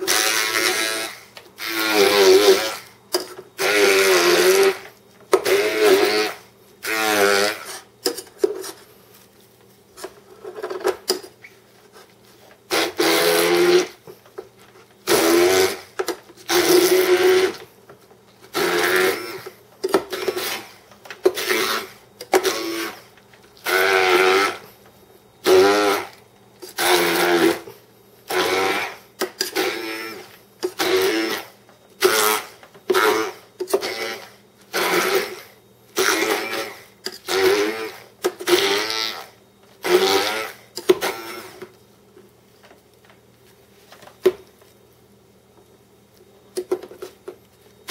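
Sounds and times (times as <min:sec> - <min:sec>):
stick blender motor bursts: 0:00.0 - 0:03.0, 0:03.6 - 0:07.9, 0:12.7 - 0:14.0, 0:15.0 - 0:17.8, 0:18.4 - 0:24.8, 0:25.4 - 0:41.7.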